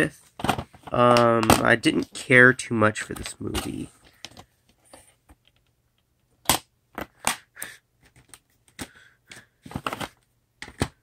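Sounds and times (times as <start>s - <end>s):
plastic cases clicking: 8.0s - 11.0s.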